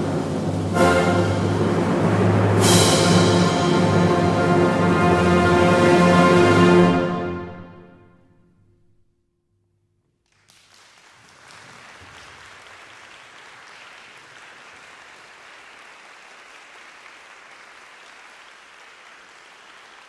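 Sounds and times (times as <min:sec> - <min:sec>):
audience applauding: 0:10.3 - 0:20.0.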